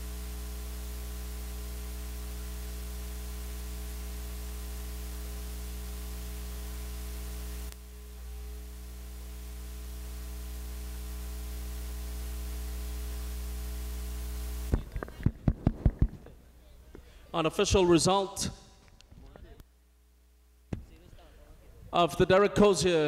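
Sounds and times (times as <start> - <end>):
electrical mains hum with hiss: 0.0 - 23.0.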